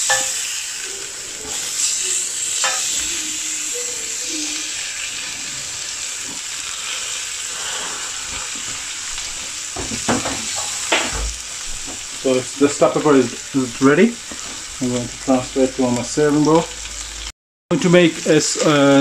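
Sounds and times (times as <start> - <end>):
metal spatula knocking pan: 0.0 - 0.4, 2.6 - 2.9
peppers sizzling on grill pan: 0.0 - 19.0.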